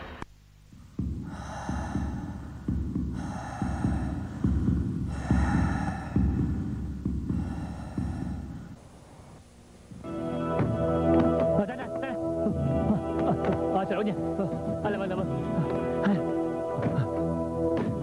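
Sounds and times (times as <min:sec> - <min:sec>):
low throbbing heartbeat pulse: 0:00.7 - 0:08.8.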